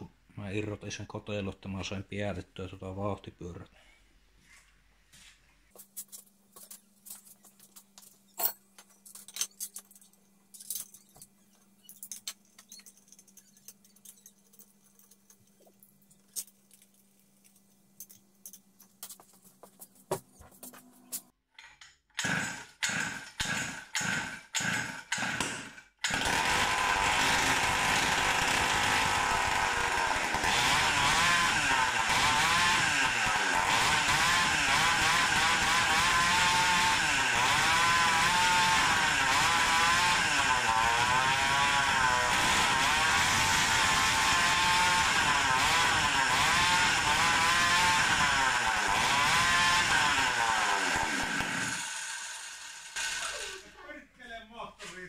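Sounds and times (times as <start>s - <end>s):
two-stroke engine sputtering and running: 26.1s - 40.1s.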